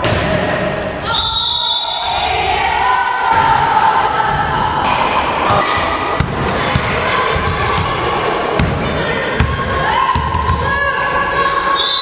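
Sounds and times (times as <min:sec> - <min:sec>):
echoing voices in a hall: 0:00.0 - 0:12.0
volleyball bouncing on wooden floor: 0:06.2 - 0:07.9, 0:08.6 - 0:08.8.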